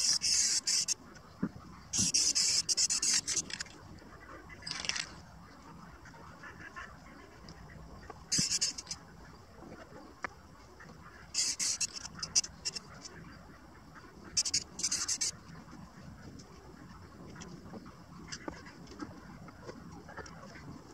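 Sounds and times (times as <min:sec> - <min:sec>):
spray can hissing: 0:11.4 - 0:11.9.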